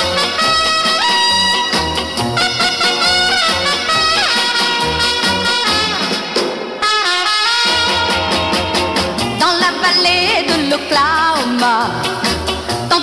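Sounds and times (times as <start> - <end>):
trumpet-led pop band: 0.0 - 13.0
person singing: 9.2 - 13.0.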